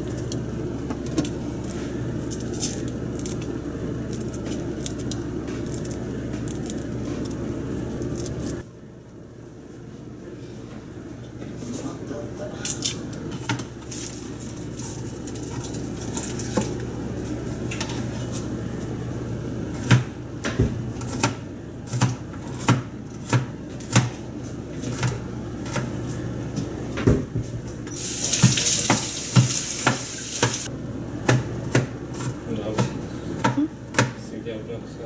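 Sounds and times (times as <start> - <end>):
knife chopping on cutting board: 19.8 - 24.2
tap water running: 27.9 - 30.7.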